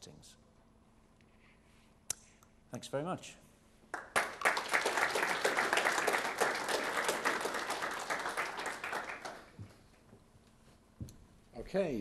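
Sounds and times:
audience applauding: 0:03.9 - 0:09.6.

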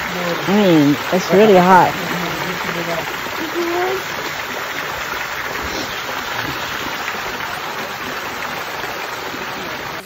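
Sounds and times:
water splashing into pool: 0:00.0 - 0:10.0.

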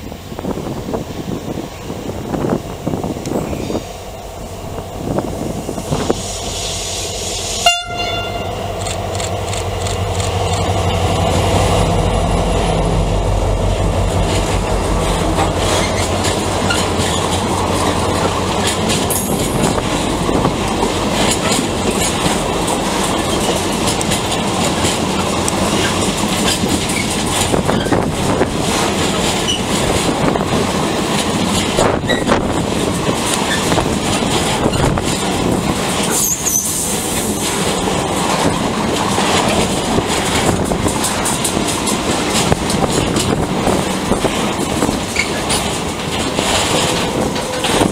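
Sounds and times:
diesel locomotive engine: 0:00.0 - 0:47.9
wheels clacking over rail joints: 0:07.8 - 0:47.9
wheel squeal: 0:15.7 - 0:17.4, 0:25.8 - 0:28.0, 0:29.4 - 0:29.7, 0:32.0 - 0:32.4, 0:36.0 - 0:37.5, 0:45.1 - 0:45.7.

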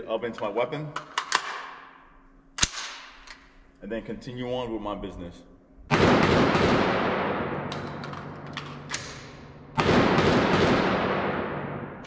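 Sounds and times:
echoing gunshots: 0:05.9 - 0:12.0.

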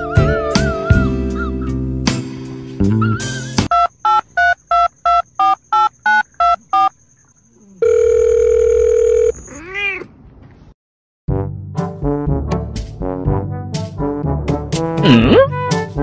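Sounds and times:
steady telephone tone: 0:07.7 - 0:09.4.

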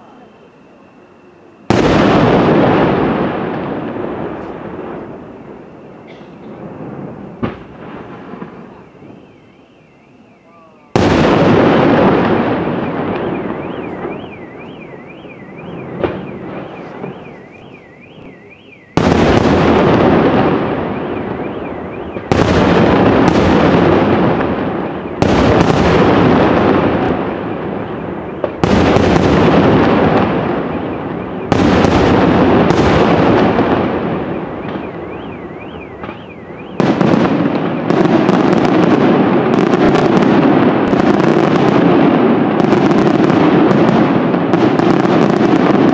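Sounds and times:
fireworks bursting with booms: 0:00.0 - 0:45.9
rapid bangs and crackles: 0:18.9 - 0:35.0, 0:35.8 - 0:45.9.

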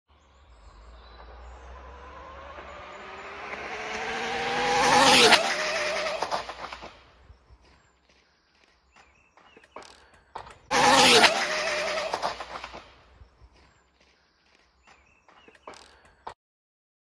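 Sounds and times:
rc car motor whine passing: 0:00.2 - 0:07.2, 0:10.5 - 0:13.0.

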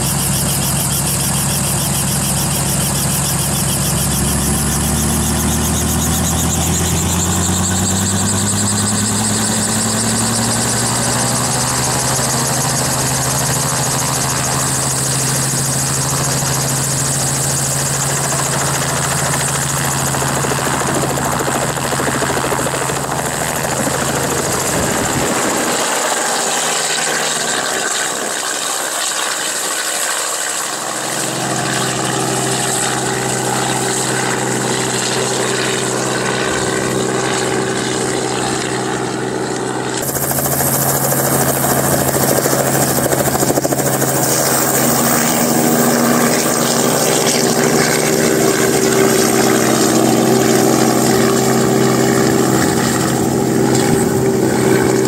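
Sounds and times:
helicopter engine and rotor: 0:00.0 - 0:55.0
rotor blade noise: 0:00.0 - 0:55.0.

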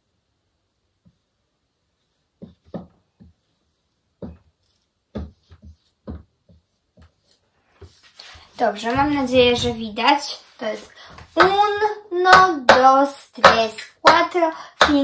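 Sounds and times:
marker writing on whiteboard: 0:01.0 - 0:10.5.

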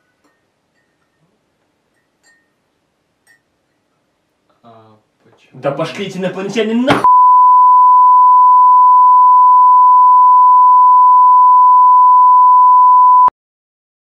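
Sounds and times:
steady electronic beep: 0:07.0 - 0:13.3.

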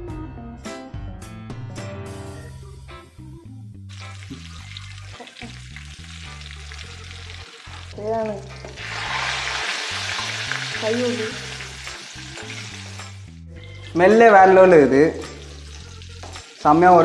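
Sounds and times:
chicken deep-frying in oil: 0:03.9 - 0:14.0.

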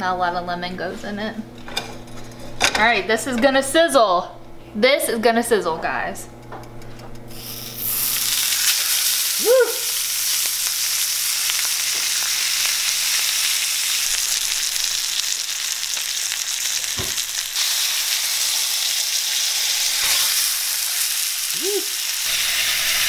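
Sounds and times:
fish sizzling in oil: 0:07.3 - 0:23.0.

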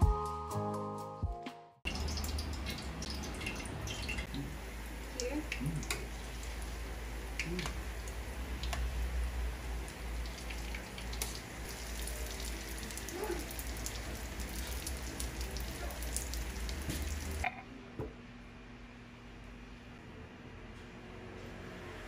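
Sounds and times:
food sizzling in hot oil: 0:01.9 - 0:17.4.

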